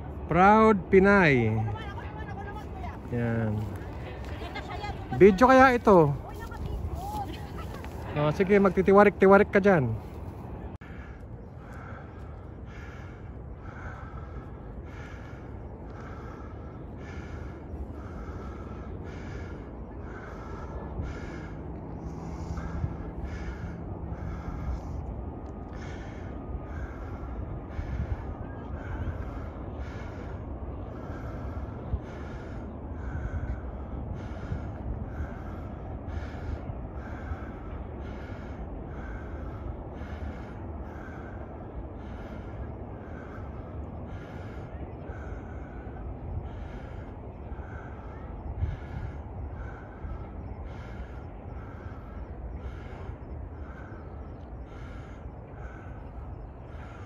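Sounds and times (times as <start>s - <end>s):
wind rumble on microphone: 0.0s - 57.0s
heavy breathing: 10.0s - 25.0s.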